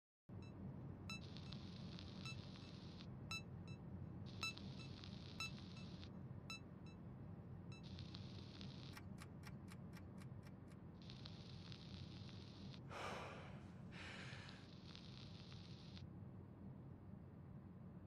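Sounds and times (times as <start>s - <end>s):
short electronic beeps: 4.4s - 7.0s.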